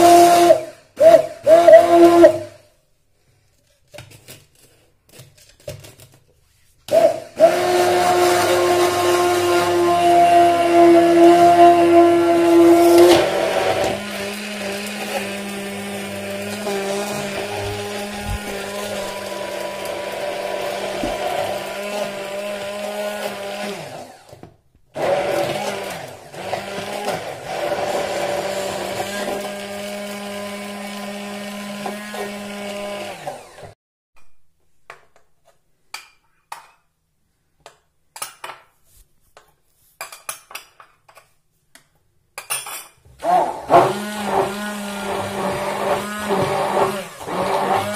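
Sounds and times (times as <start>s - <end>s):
immersion blender motor humming: 6.9s - 24.4s, 25.0s - 33.8s, 43.2s - 47.9s.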